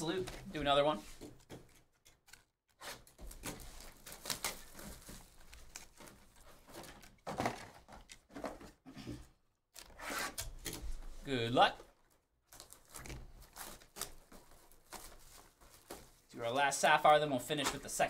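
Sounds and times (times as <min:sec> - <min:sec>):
plastic wrap crinkling: 0:03.2 - 0:07.4, 0:11.9 - 0:16.3.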